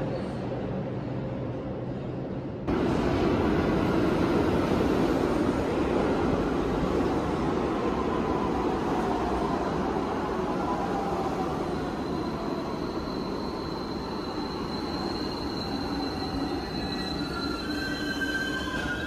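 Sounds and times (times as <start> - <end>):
high brake squeal: 11.8 - 19.0.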